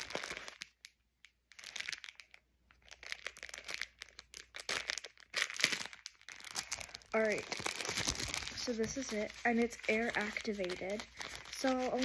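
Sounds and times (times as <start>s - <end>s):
plastic wrapper crinkling: 0.0s - 12.0s.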